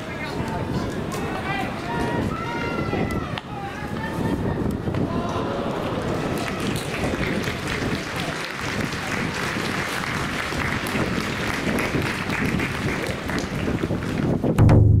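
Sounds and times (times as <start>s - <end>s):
voices: 0.0s - 9.6s
crowd applauding: 5.1s - 14.4s
loud low thud with ringing: 14.6s - 15.0s.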